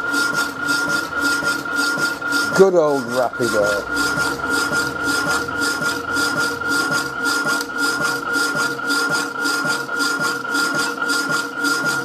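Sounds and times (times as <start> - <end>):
power hacksaw sawing steel: 0.0 - 12.0
steady high tone: 1.1 - 9.4.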